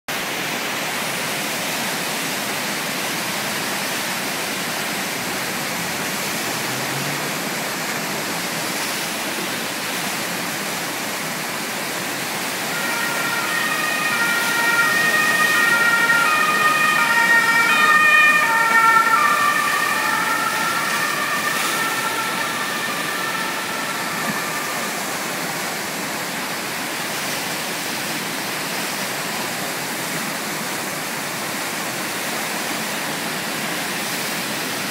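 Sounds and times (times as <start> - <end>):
rushing whitewater: 0.1 - 34.9
two-tone emergency siren: 12.2 - 26.9.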